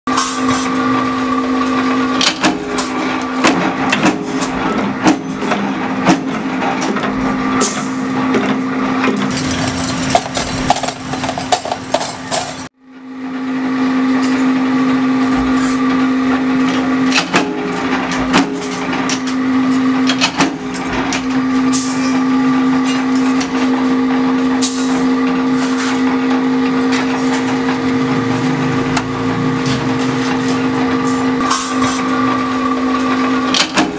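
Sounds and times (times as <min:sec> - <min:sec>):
metal clanks and clicks: 0:08.4 - 0:12.7
power press humming: 0:08.9 - 0:12.7.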